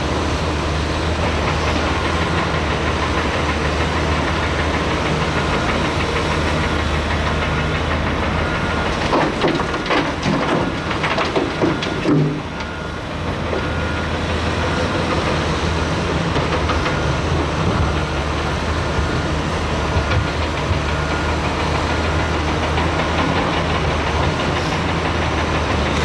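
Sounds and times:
excavator engine running: 0.0s - 26.0s
metal clanks and knocks: 8.8s - 12.8s.

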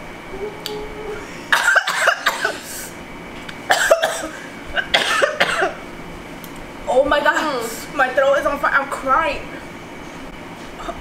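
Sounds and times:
woman coughing: 1.5s - 2.9s, 3.7s - 5.8s.

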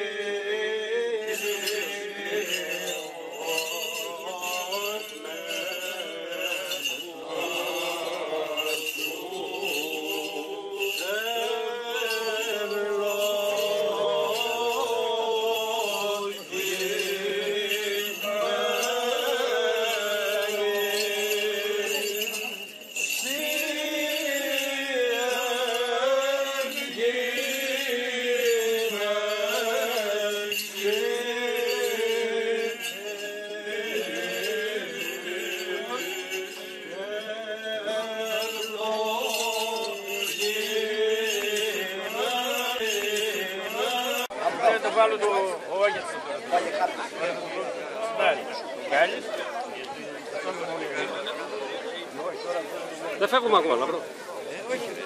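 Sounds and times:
voices chanting: 0.0s - 49.9s
small bells jingling: 1.2s - 45.2s.

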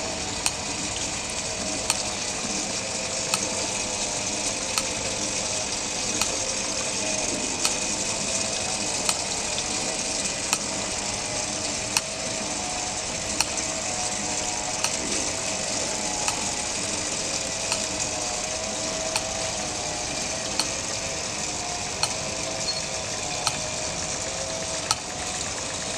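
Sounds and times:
mechanism clicking: 0.0s - 25.3s
water trickling: 0.0s - 25.9s.

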